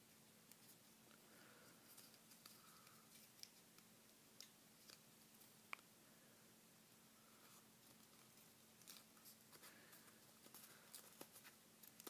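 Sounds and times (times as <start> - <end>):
faint room hum: 0.0 - 12.0
paper crinkling: 7.4 - 12.0.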